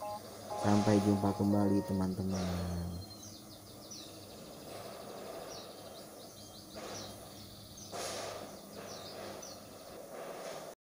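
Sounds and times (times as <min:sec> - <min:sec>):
low steady hum: 0:00.0 - 0:04.4
small birds chirping: 0:00.0 - 0:10.7.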